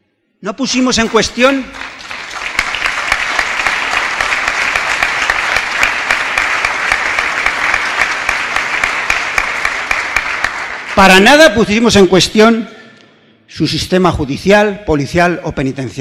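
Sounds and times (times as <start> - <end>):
audience applause: 1.1 - 11.2.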